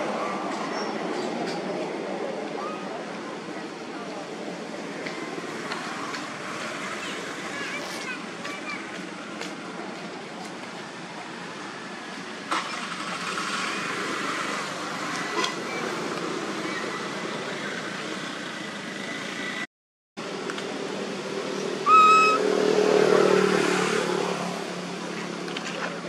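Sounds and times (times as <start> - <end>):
outdoor background noise: 0.0 - 26.0
motor vehicle passing: 21.3 - 26.0
short high-pitched call: 21.8 - 22.5.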